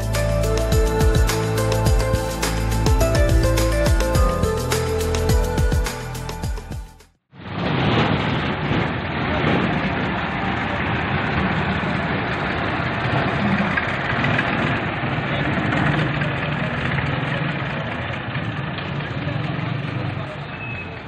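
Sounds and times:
bus diesel engine: 0:00.0 - 0:06.4, 0:08.3 - 0:21.0
tractor diesel engine: 0:00.0 - 0:06.4, 0:08.3 - 0:21.0.

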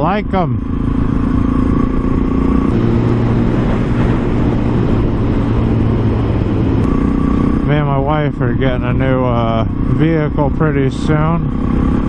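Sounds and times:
motorcycle engine running: 0:00.0 - 0:12.0
wind noise: 0:00.7 - 0:10.3.

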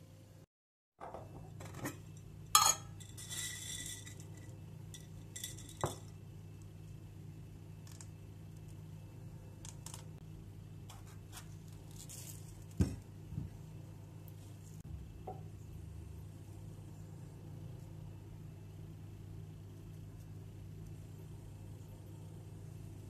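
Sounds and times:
low steady hum: 0:00.0 - 0:23.0
tableware clunking: 0:01.0 - 0:04.2
glass clinking: 0:02.6 - 0:04.4.

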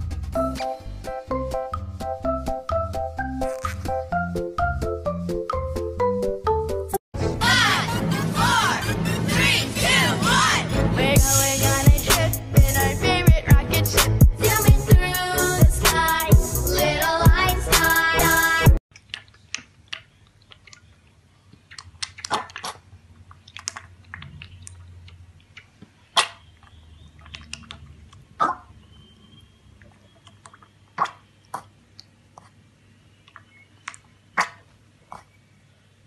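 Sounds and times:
piglet slurping milk: 0:18.9 - 0:28.7, 0:29.8 - 0:32.6.

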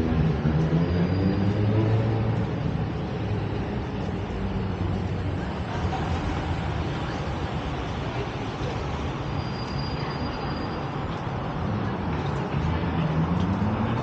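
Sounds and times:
steady traffic noise: 0:00.0 - 0:14.0
vehicle engine hum: 0:11.0 - 0:14.0.

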